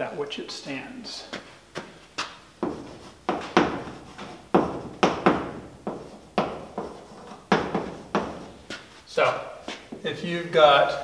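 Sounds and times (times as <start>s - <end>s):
chalk tapping and scratching on blackboard: 1.4s - 9.0s.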